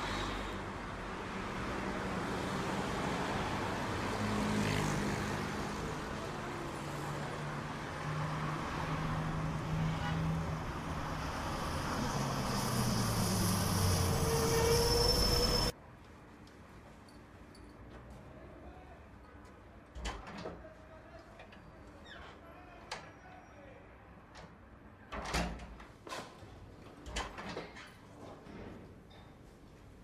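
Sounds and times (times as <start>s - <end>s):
road traffic passing: 0.0s - 15.8s.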